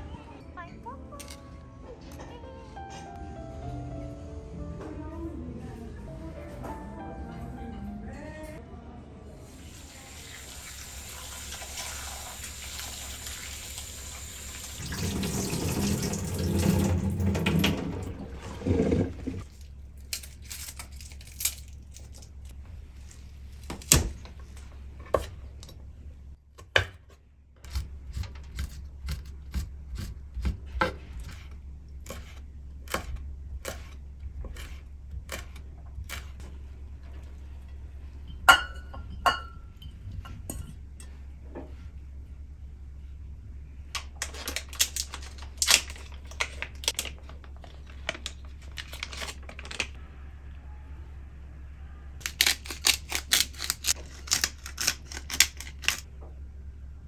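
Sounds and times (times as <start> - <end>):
tap water running: 9.6 - 19.5
ceramic dishes clinking: 38.2 - 41.2.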